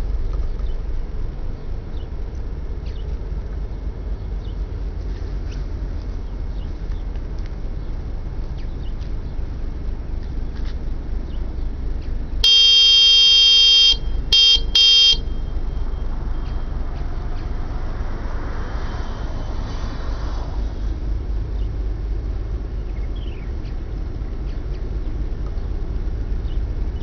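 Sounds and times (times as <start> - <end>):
steady low rumble: 0.0 - 27.0
ship horn blasts: 12.4 - 16.1.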